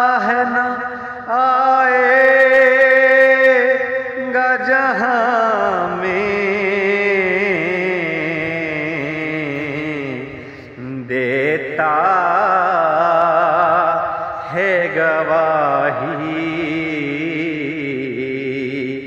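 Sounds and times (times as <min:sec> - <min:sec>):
man singing unaccompanied: 0:00.0 - 0:19.0.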